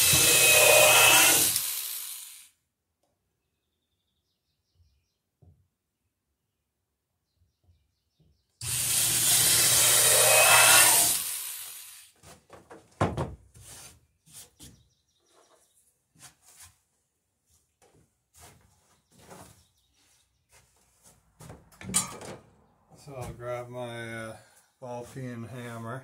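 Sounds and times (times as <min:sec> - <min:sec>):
electric drill boring wood: 0:00.0 - 0:02.5, 0:08.6 - 0:12.1.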